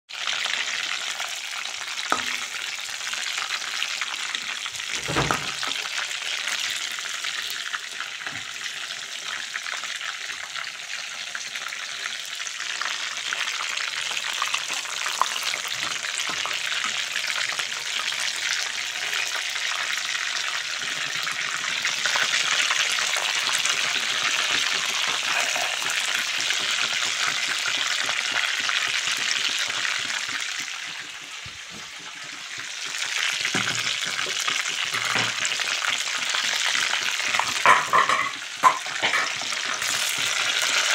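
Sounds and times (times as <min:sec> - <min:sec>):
meatballs deep-frying in oil: 0:00.1 - 0:40.9.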